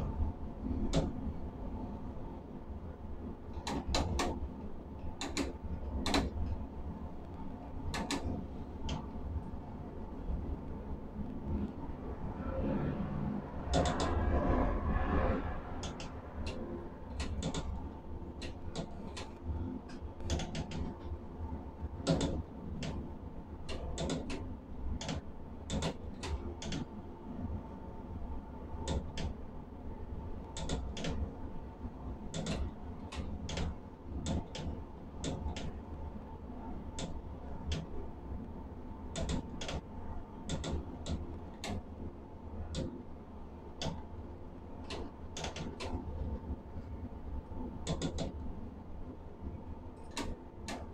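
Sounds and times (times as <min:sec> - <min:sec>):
sharp clicks and knocks: 0:03.6 - 0:04.4, 0:05.2 - 0:06.6, 0:07.9 - 0:09.0, 0:13.8 - 0:14.2, 0:17.2 - 0:17.8, 0:18.4 - 0:20.9, 0:22.0 - 0:23.0, 0:23.7 - 0:24.4, 0:25.0 - 0:26.9, 0:30.6 - 0:31.2, 0:32.3 - 0:35.8, 0:39.2 - 0:39.9, 0:40.5 - 0:41.8, 0:44.8 - 0:46.0, 0:47.8 - 0:48.4, 0:50.0 - 0:50.9
machinery low drone: 0:09.4 - 0:18.4.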